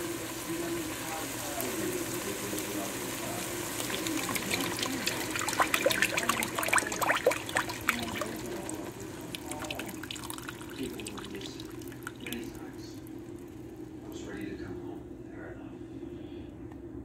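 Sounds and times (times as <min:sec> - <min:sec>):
milk pouring into hot pot: 0:00.0 - 0:13.6.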